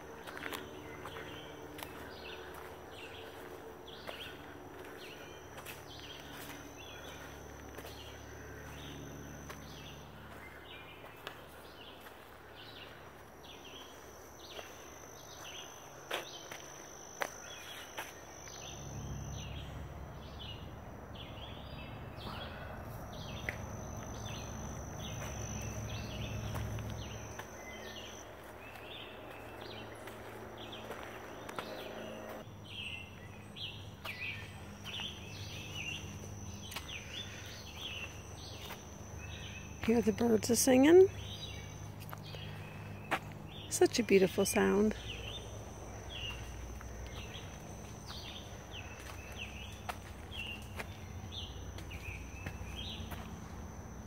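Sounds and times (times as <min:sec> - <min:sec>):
insect drone: 0:00.0 - 0:54.0
footsteps: 0:10.3 - 0:18.3, 0:23.4 - 0:32.5, 0:46.1 - 0:53.6.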